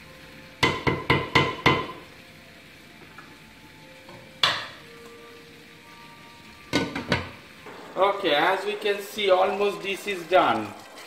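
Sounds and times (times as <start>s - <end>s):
wooden spatula knocking on pot: 0.6s - 2.0s, 4.1s - 4.8s, 6.7s - 7.4s.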